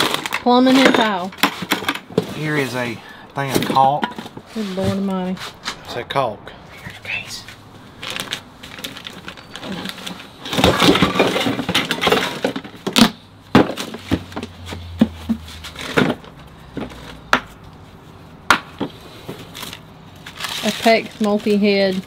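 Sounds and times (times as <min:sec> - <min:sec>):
scraping and rustling: 0:07.4 - 0:18.2, 0:18.8 - 0:22.0
sharp knocks and clatters: 0:08.2 - 0:17.6.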